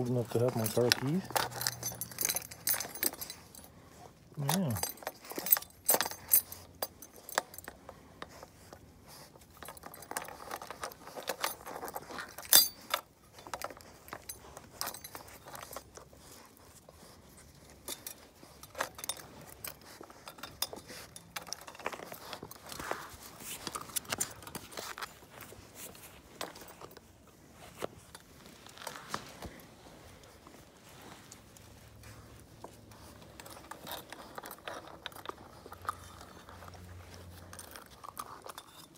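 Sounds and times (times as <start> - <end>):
car keys jangling: 0.0 - 3.8, 4.4 - 7.8, 9.3 - 16.5.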